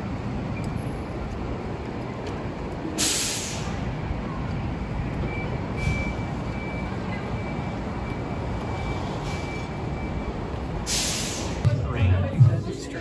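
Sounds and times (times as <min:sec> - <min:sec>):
city street traffic rumbling: 0:00.0 - 0:13.0
air brakes hissing: 0:03.0 - 0:03.9, 0:05.8 - 0:06.3, 0:08.9 - 0:09.9, 0:10.8 - 0:11.7.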